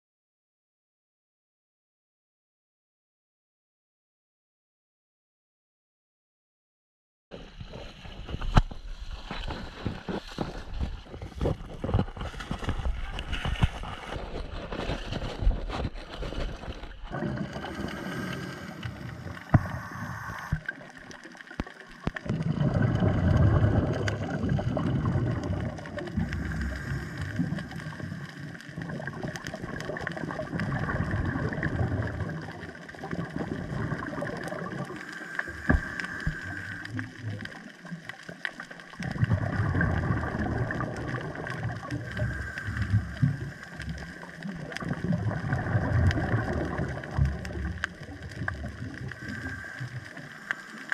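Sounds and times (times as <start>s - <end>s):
regulator bubbles underwater: 7.4s - 50.9s
faint underwater hum: 16.6s - 29.1s, 30.4s - 38.2s, 39.0s - 50.9s.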